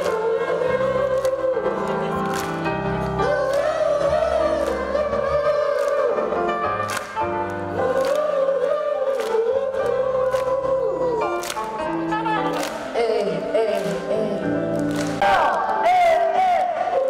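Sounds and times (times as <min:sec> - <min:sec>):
person singing: 0:07.8 - 0:17.0.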